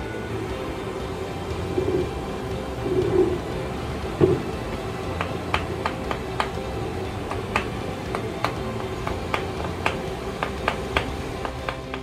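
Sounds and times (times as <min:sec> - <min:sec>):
wooden mallet tapping steel: 0:04.2 - 0:12.0.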